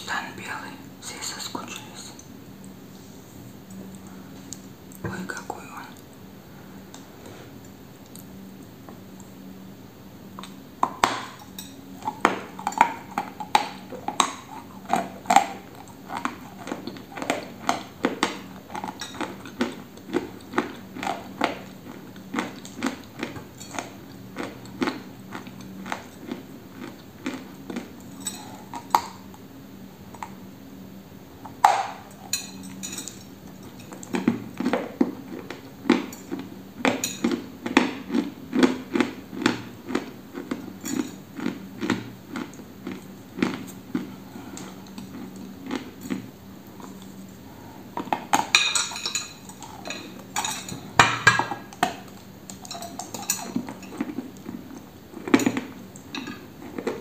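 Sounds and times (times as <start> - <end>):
chewing crunchy mineral lump: 12.0 - 29.4, 33.7 - 48.5.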